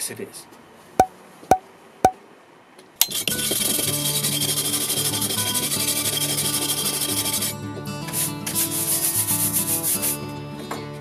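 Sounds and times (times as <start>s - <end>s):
brush scrubbing rusty steel: 3.0s - 10.2s.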